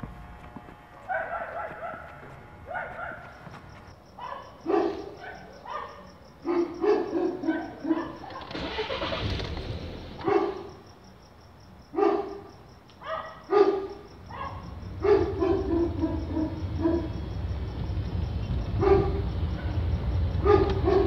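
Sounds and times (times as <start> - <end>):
dog barking: 1.0 - 9.2, 10.2 - 10.8, 11.9 - 17.2, 18.7 - 21.0
car engine rumble: 7.9 - 10.4, 14.1 - 21.0.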